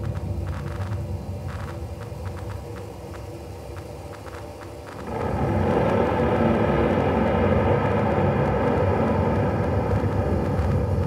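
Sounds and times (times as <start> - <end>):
faint clicks: 0.0 - 5.2
rainforest storm soundscape: 0.0 - 11.0.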